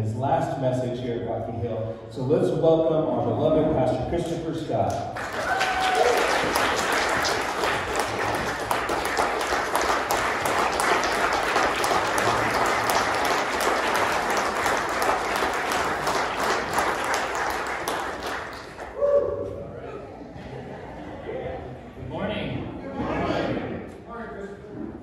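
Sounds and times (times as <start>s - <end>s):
congregation applauding: 5.1s - 19.1s.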